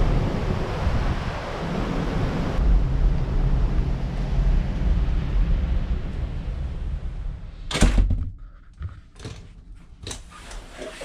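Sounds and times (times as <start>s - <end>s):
wind and sea noise: 0.0s - 7.9s
sliding door thunk shut: 7.7s - 8.3s.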